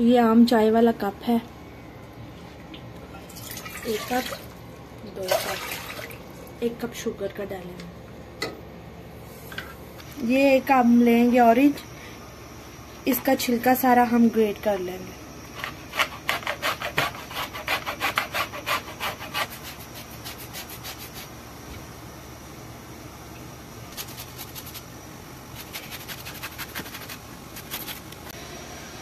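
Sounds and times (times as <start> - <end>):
peel grated on metal grater: 15.6 - 21.3.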